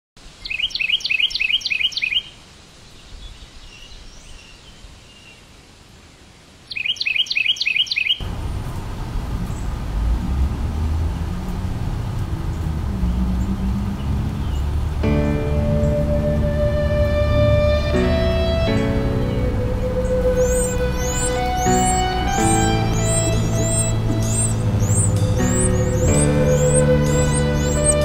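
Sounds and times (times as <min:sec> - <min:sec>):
wren song: 0:00.4 - 0:02.4, 0:06.7 - 0:08.8, 0:09.4 - 0:28.0
low background rumble: 0:08.2 - 0:28.0.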